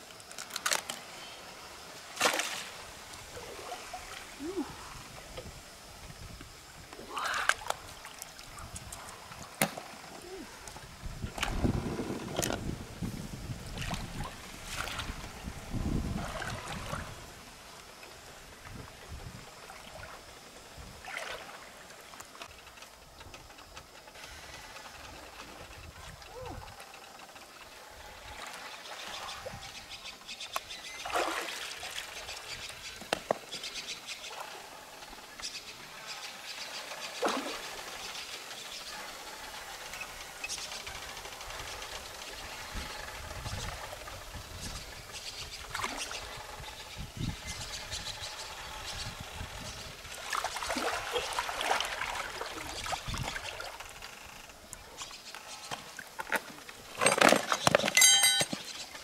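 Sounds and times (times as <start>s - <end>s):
river water splashing: 0.3s - 5.2s, 7.0s - 12.8s, 13.4s - 19.0s, 21.0s - 22.4s, 30.9s - 32.6s, 35.8s - 40.0s, 45.6s - 46.4s, 50.0s - 59.0s
low rumbling water: 1.4s - 30.3s, 37.1s - 55.0s
water splashing and dripping: 50.2s - 53.8s.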